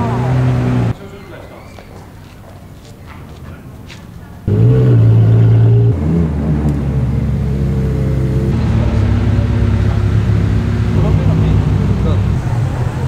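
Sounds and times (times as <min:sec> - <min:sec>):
car engine idling: 0:04.4 - 0:13.0.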